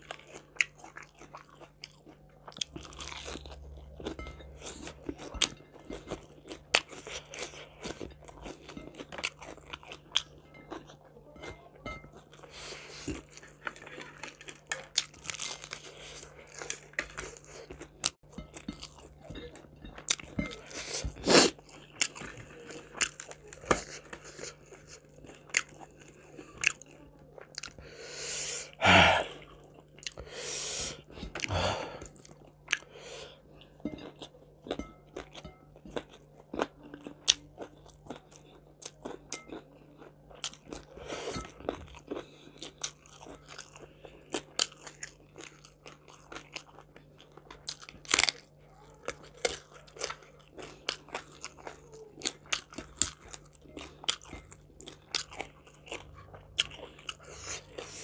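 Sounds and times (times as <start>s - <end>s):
person chewing crunchy food: 0.0s - 58.0s
mouth sounds: 28.8s - 29.4s.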